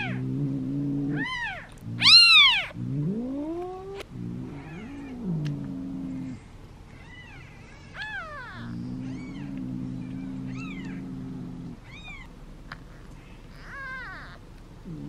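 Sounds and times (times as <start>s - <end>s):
kittens mewing: 1.1s - 15.0s.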